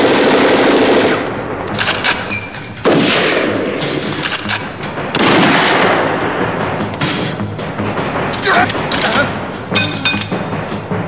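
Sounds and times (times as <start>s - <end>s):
automatic rifle fire: 0.0s - 4.6s
heavy blasts: 0.0s - 11.0s.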